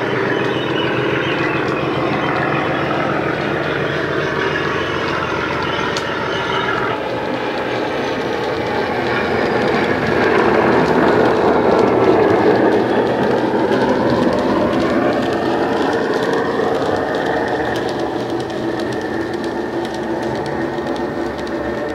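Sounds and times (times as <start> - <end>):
model locomotive diesel engine sound: 0.0 - 21.9
model wheels clicking on track: 0.0 - 21.9.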